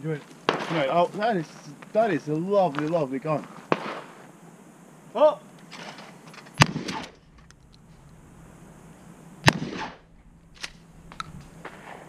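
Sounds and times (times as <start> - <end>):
shotgun shots with echo: 3.7 - 4.1, 6.6 - 7.3, 9.4 - 10.1.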